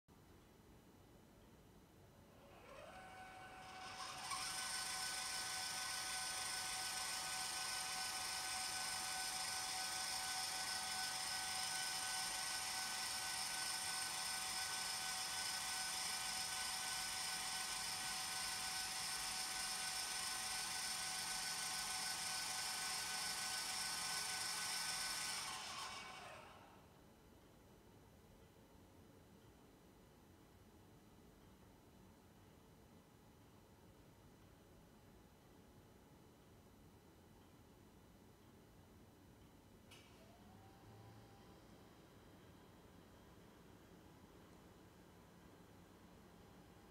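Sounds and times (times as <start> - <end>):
high motor gear whine: 2.5 - 26.8.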